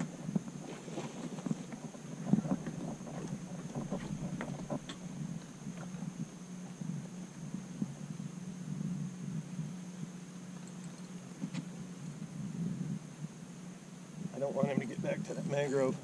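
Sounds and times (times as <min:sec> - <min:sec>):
wind on microphone: 0:00.0 - 0:10.2, 0:11.0 - 0:13.4
steady low hum: 0:00.0 - 0:16.0.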